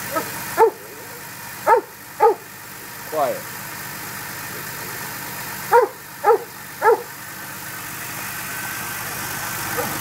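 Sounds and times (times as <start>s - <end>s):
car engine idling: 0.0s - 10.0s
dog barking: 0.1s - 0.8s, 1.6s - 2.5s, 5.7s - 7.1s.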